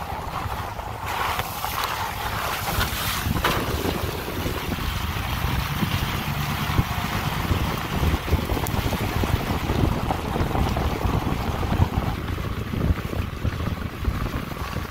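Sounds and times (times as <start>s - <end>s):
pickup truck rumbling on dirt road: 0.0s - 14.9s
wind buffeting microphone: 0.0s - 14.9s.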